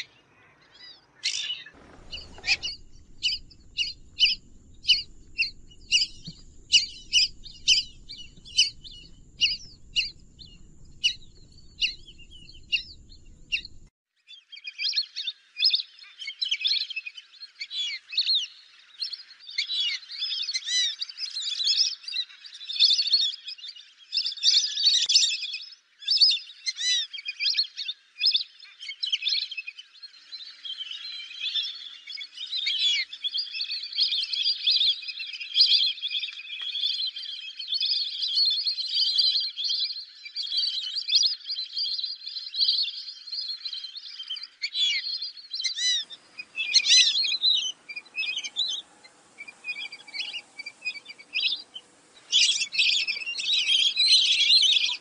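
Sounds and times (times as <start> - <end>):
whistling ducks calling: 0.0 - 13.9, 43.6 - 55.0.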